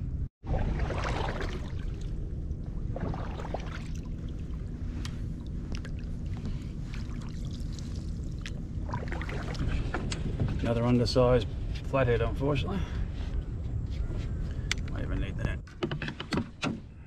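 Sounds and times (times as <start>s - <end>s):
steady low rumble: 0.0s - 15.7s
small splashes: 0.4s - 10.0s
paddle dipping and dripping: 0.4s - 10.4s.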